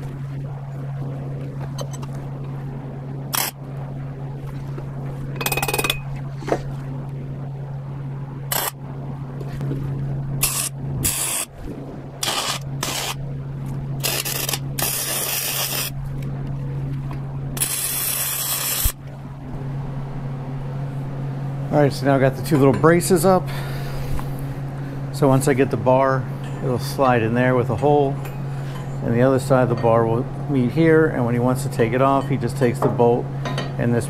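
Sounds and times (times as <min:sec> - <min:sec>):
steady low hum: 0:00.0 - 0:34.0
arc welder crackling bursts: 0:03.3 - 0:03.6, 0:08.5 - 0:08.8, 0:10.4 - 0:11.6, 0:12.2 - 0:13.3, 0:14.0 - 0:16.0, 0:17.6 - 0:19.0.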